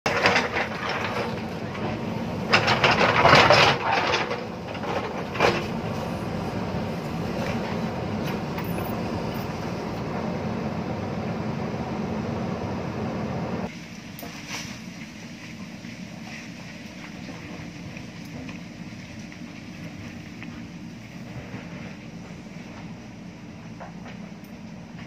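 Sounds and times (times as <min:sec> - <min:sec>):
diesel engine running: 0:00.0 - 0:25.0
rock scraping and crashing: 0:00.1 - 0:06.2.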